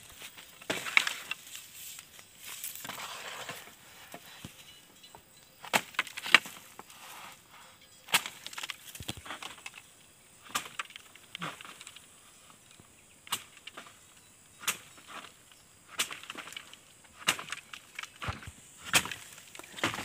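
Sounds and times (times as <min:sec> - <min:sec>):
bamboo leaves rustling: 0:00.0 - 0:04.7, 0:05.6 - 0:09.8, 0:10.4 - 0:20.0.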